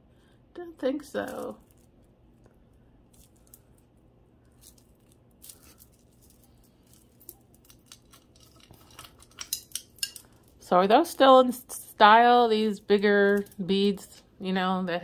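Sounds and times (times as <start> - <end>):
beads and metal pieces clinking: 4.5 - 10.7.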